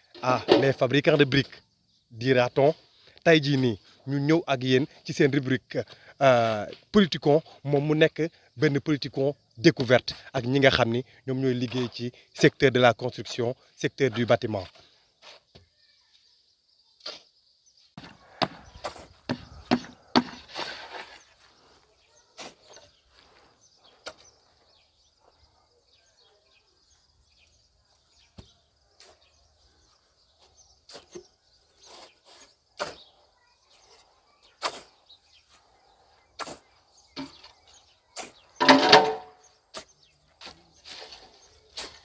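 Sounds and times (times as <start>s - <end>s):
shovel scraping: 18.0s - 24.3s, 30.4s - 33.1s, 33.7s - 35.0s, 36.3s - 37.6s, 38.2s - 42.0s
knocks and clanks: 38.6s - 39.4s.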